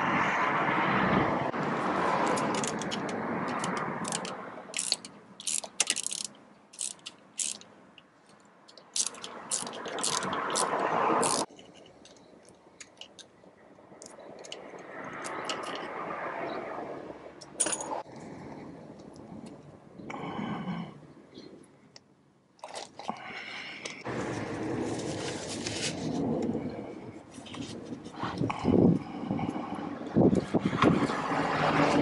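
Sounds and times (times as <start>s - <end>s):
hand ratchet clicking: 2.2s - 7.7s, 8.7s - 11.9s
metal tool clinking against gears: 3.6s - 7.6s, 8.7s - 11.9s, 17.5s - 18.0s.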